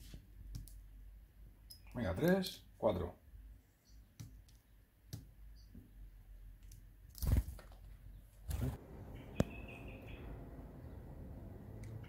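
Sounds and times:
faint high bird chirp: 3.8 - 4.8, 5.4 - 5.9, 9.0 - 11.1.

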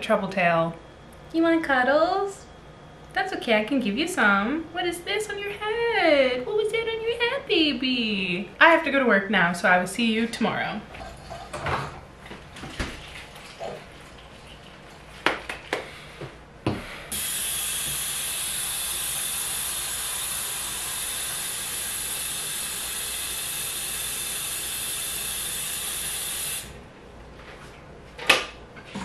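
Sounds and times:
tap running: 15.2 - 26.7.

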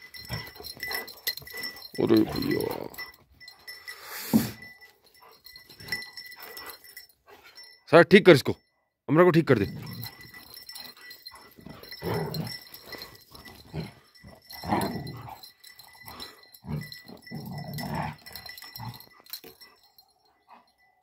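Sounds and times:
dogs growling: 0.0 - 3.2, 9.6 - 20.8.

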